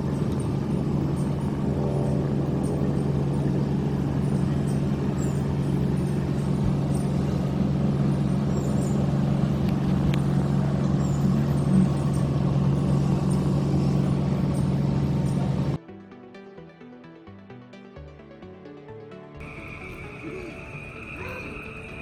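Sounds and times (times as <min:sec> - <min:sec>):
motor humming: 0:00.0 - 0:15.8.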